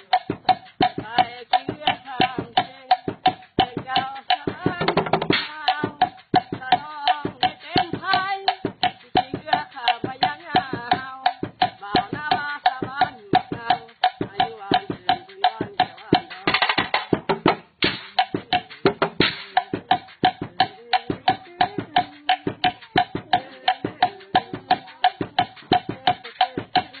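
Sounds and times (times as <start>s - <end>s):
sticks beating a hollow log drum: 0.0s - 27.0s.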